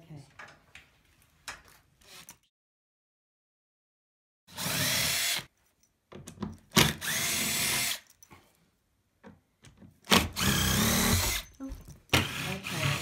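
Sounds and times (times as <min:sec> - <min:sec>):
cordless drill whining: 0:04.5 - 0:05.5, 0:06.8 - 0:08.1, 0:10.1 - 0:13.0.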